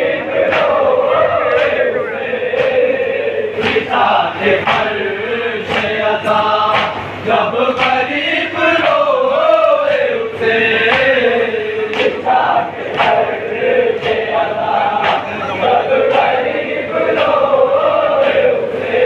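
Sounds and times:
men chanting in unison: 0.0s - 19.0s.

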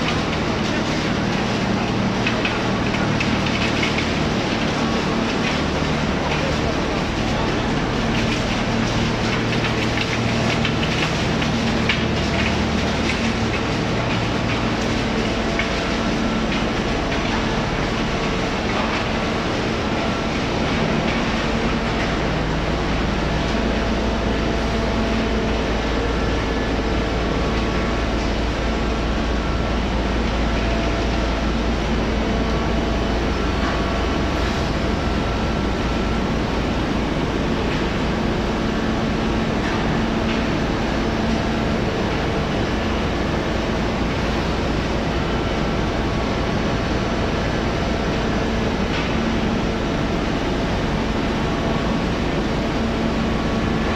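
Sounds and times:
crushing and sorting machinery: 0.0s - 28.5s
constant mechanical hums: 0.0s - 53.9s.

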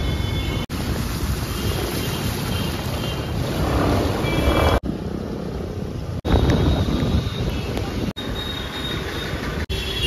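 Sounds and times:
heavy rain: 0.0s - 8.1s
water splashing from tyres: 0.5s - 4.8s
wind rumbling on microphone: 0.7s - 8.2s.

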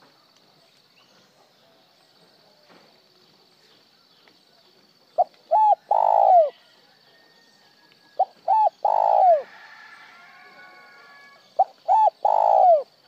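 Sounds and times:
dove cooing: 5.2s - 6.6s, 8.2s - 9.5s, 11.6s - 13.0s.

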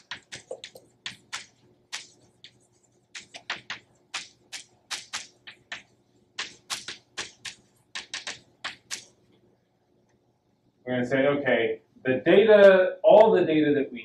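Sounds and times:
chalk writing on blackboard: 0.0s - 9.0s.

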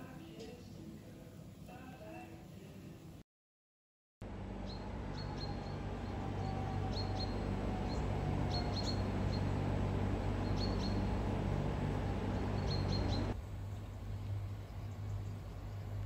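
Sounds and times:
low background noise: 0.0s - 3.2s
small bird chirping: 10.4s - 11.2s, 12.4s - 13.4s.

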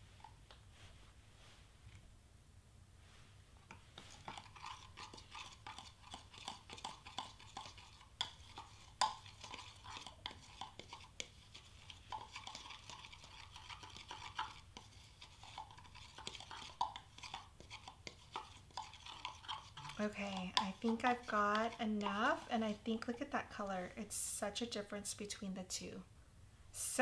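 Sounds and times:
spoon scraping powder: 3.7s - 24.0s.

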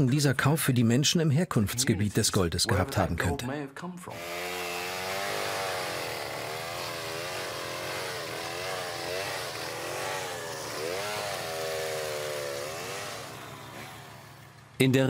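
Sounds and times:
chainsaw cutting wood: 4.1s - 14.8s.

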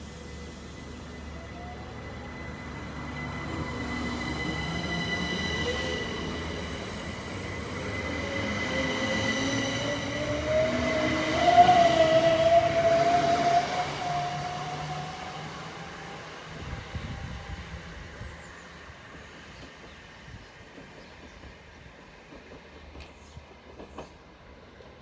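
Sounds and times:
electric train whine pulling away: 0.0s - 20.7s.

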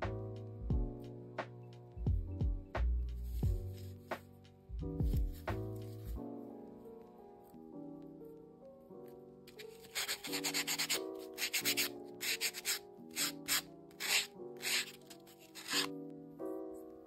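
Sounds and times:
soft lo-fi piano music: 0.0s - 17.0s
nail buffer scratching fingernail: 9.5s - 15.9s.

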